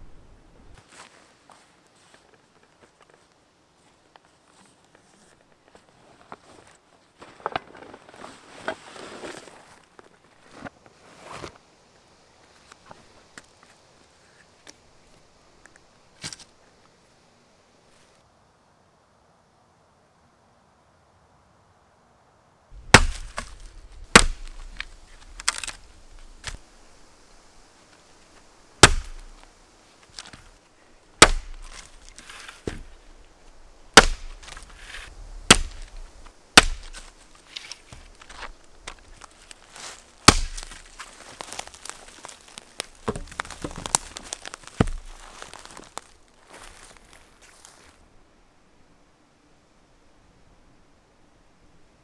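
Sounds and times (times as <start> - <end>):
wood crackling: 22.7 - 48.0
hatchet chopping wood: 22.8 - 25.8, 28.8 - 29.4, 31.2 - 31.9, 34.0 - 34.6, 35.5 - 35.9, 36.6 - 37.1, 40.2 - 40.9, 43.1 - 44.0, 44.6 - 45.1
footsteps through dry twigs: 22.8 - 48.0
wooden pole being handled: 22.9 - 26.7, 27.9 - 30.6, 31.2 - 47.5.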